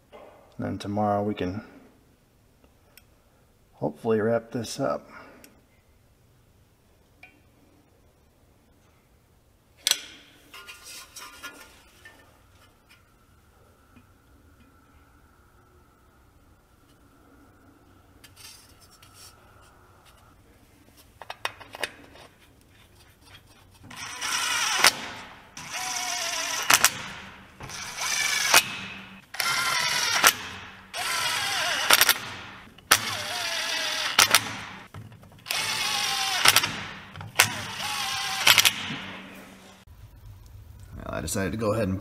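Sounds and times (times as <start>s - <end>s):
impact wrench bursts: 23.9s - 39.3s.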